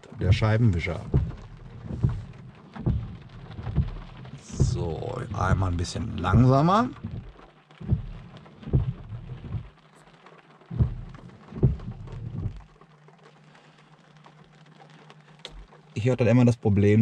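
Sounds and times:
wiper arms thudding: 0.0s - 9.9s, 10.6s - 12.7s
wiper motor hum: 0.0s - 17.0s.

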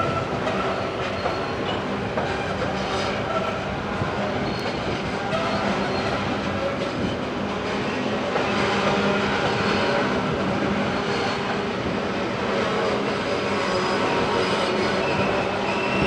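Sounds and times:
train wheels rumbling on rail: 0.0s - 16.0s.

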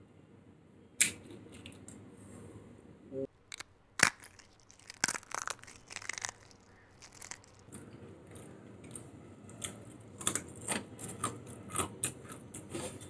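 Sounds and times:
cookie being chewed: 3.4s - 13.0s
cookie cracking: 3.4s - 13.0s.

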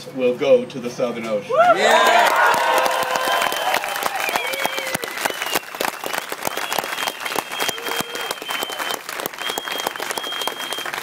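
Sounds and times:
crowd applauding: 1.7s - 11.0s
high whistle: 4.2s - 11.0s.

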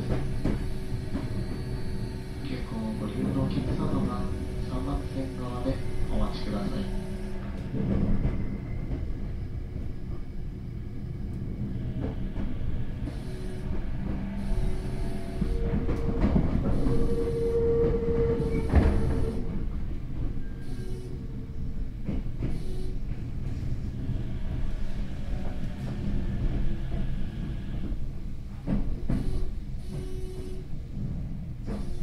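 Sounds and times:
wheels rumbling on rail: 0.0s - 32.0s
traction motor whine: 13.0s - 19.6s.

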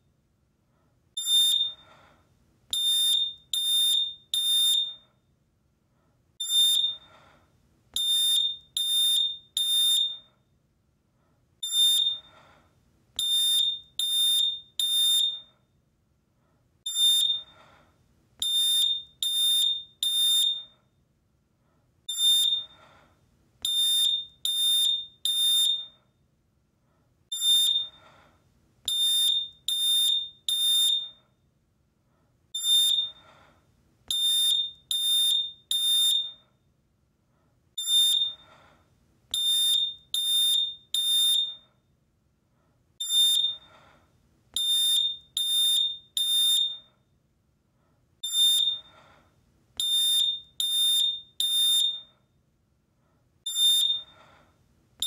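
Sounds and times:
smoke alarm beeping: 1.2s - 1.9s, 2.7s - 5.1s, 6.4s - 7.1s, 8.0s - 10.3s, 11.6s - 12.4s, 13.2s - 15.6s, 16.8s - 17.6s, 18.4s - 20.9s, 22.1s - 22.8s, 23.6s - 26.1s, 27.3s - 28.0s, 28.9s - 31.3s, 32.6s - 33.3s, 34.1s - 36.6s, 37.8s - 38.5s, 39.3s - 41.7s, 43.0s - 43.7s, 44.6s - 47.1s, 48.2s - 48.9s, 49.8s - 52.2s, 53.4s - 54.2s.

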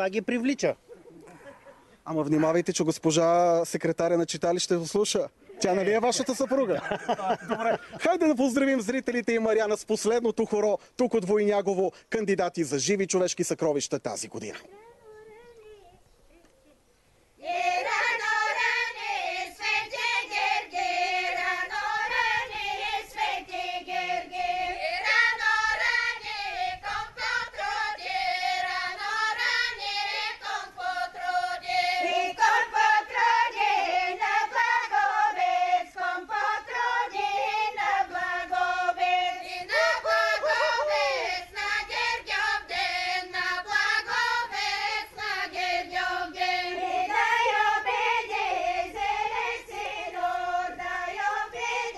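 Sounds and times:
women singing folk song: 17.4s - 51.9s.

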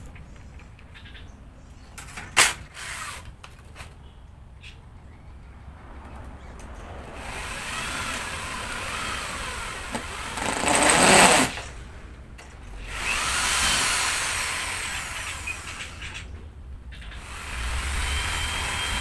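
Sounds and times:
electric drill boring into wood: 7.3s - 11.6s, 12.9s - 15.9s, 17.2s - 19.0s.

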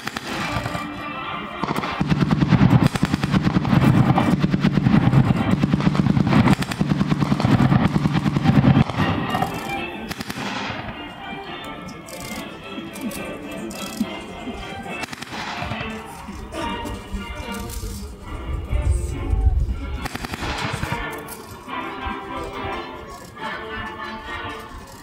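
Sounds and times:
automatic gunfire bursts: 0.0s - 1.0s, 1.6s - 10.9s, 15.0s - 16.0s, 20.0s - 21.1s.

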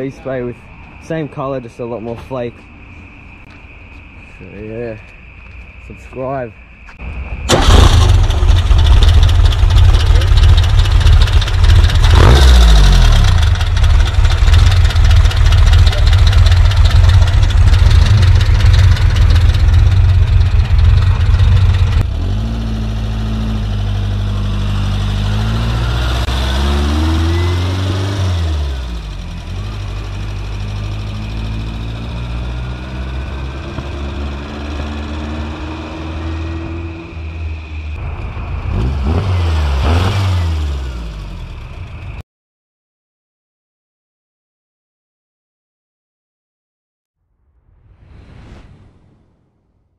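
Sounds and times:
dune buggy engine revving: 7.5s - 37.5s, 38.3s - 42.0s.

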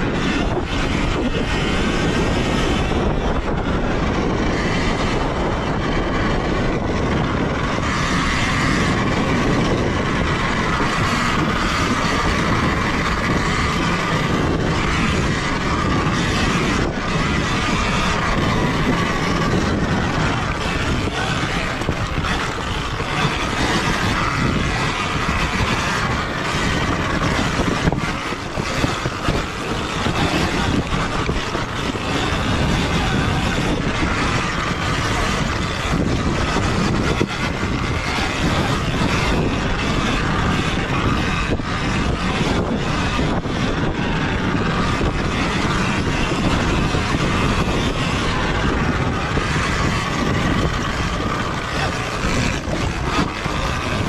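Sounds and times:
electric motor whine: 0.0s - 54.0s
tyre chain and suspension noise: 0.0s - 54.0s
wind rush: 0.0s - 54.0s.

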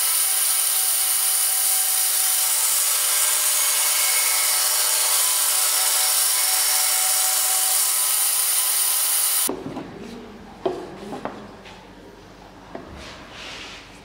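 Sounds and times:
bandsaw cutting wood: 0.0s - 9.5s.

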